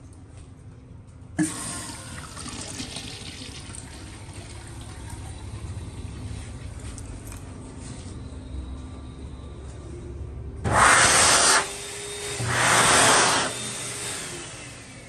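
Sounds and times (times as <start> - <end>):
water rushing through urinal: 1.4 - 6.6.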